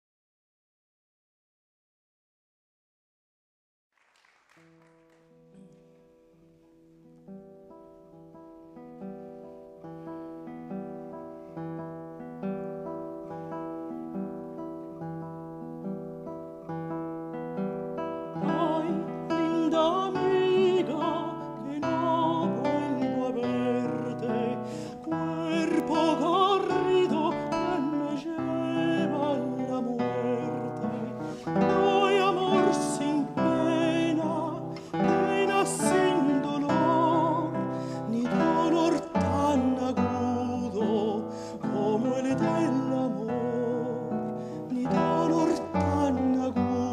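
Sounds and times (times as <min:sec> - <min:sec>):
classical guitar: 0:04.2 - 0:46.9
countertenor singing with vibrato: 0:18.4 - 0:46.9.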